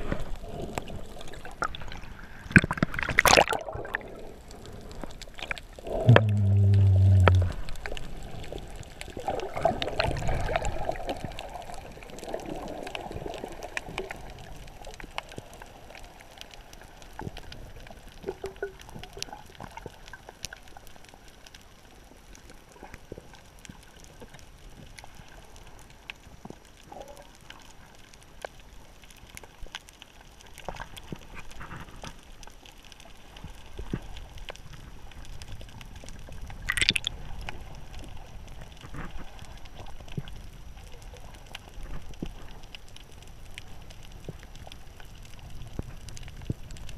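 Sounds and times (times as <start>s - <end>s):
water bubbling and gurgling: 0.0s - 20.8s, 36.2s - 42.6s.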